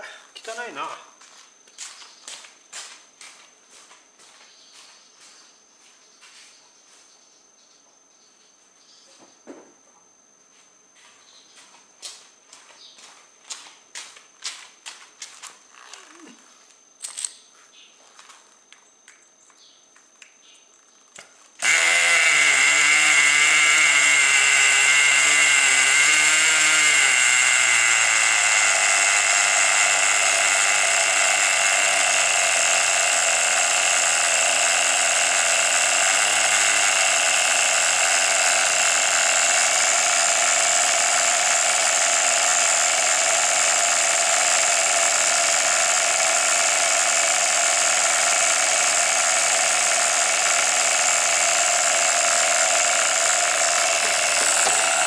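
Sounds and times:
model car engine running: 21.6 - 55.0.

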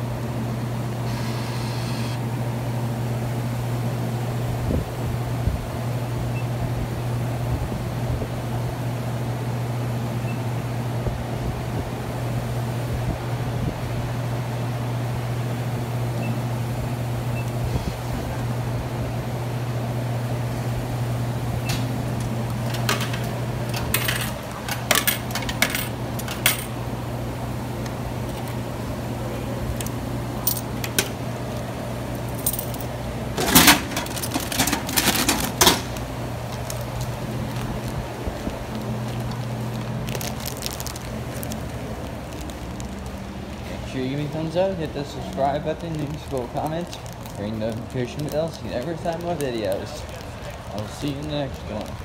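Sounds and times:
vending machine humming: 0.0 - 52.0
bag of chips dropping: 33.4 - 43.0.

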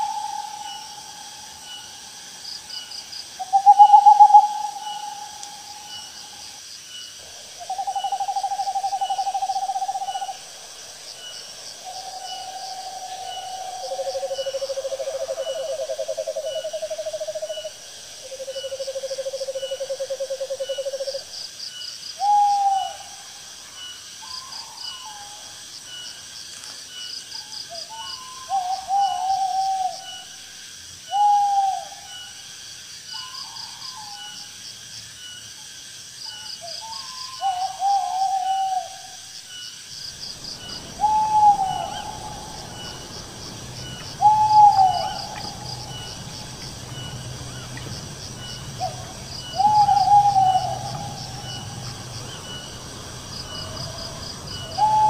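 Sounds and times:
insects chirping: 0.0 - 55.0
owls hooting: 3.4 - 6.4, 7.6 - 10.5, 36.8 - 39.2, 40.5 - 55.0.

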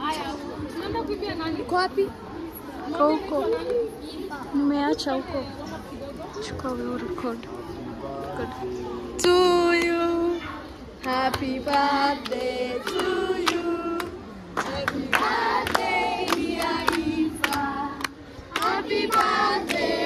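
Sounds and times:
handclaps: 9.2 - 10.1, 11.0 - 19.9
children singing in chorus: 11.0 - 20.0.

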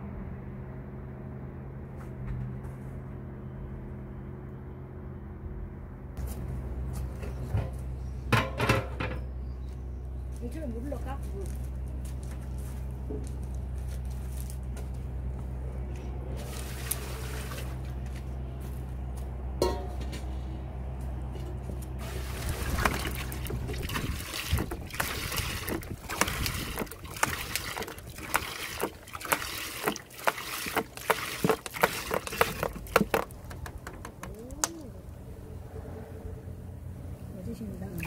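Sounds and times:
steady low hum: 0.0 - 29.9, 31.9 - 38.0
single clink: 19.6 - 20.0
liquid glugging and splashing: 22.0 - 34.6.

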